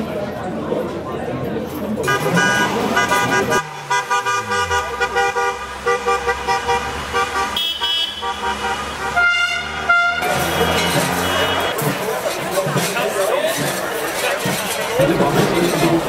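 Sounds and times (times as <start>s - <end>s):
car horns honking: 2.0s - 12.0s
car engine running: 2.6s - 7.5s.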